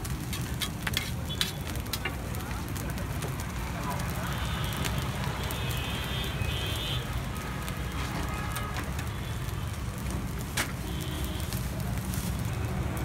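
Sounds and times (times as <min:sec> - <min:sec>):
utensils clicking and clattering: 0:00.0 - 0:02.2.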